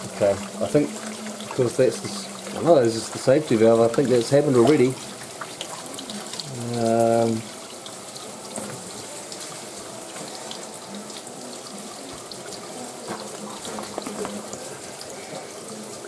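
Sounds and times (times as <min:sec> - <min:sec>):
tap water splashing on metal lid: 0:13.0 - 0:14.6.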